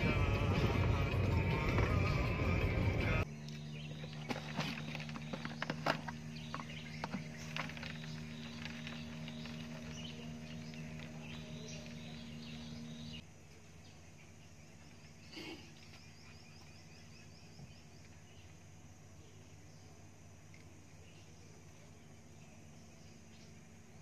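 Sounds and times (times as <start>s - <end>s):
steady low hum: 0.0s - 24.0s
faint high chirping: 3.2s - 20.0s.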